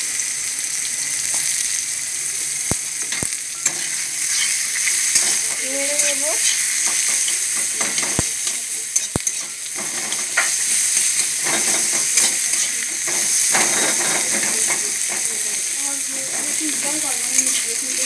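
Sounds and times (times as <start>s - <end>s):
onions sizzling in hot oil: 0.0s - 18.0s
metal spatula scraping pan: 3.1s - 15.4s, 16.2s - 18.0s.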